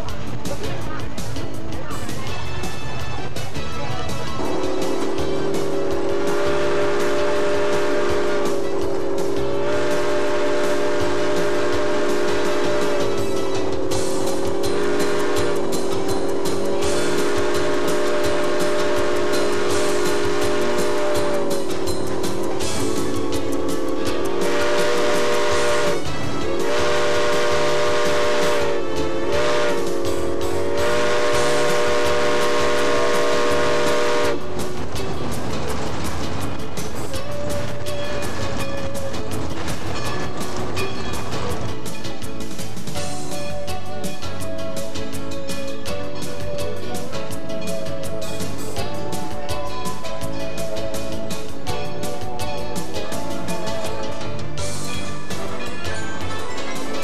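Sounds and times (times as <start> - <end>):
moving train rumble: 0.0 - 57.0
steam locomotive whistle: 4.3 - 34.6.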